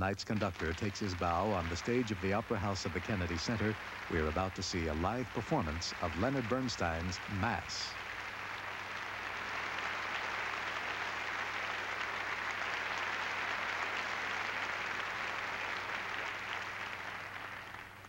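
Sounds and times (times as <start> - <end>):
audience applauding: 0.2 - 18.0.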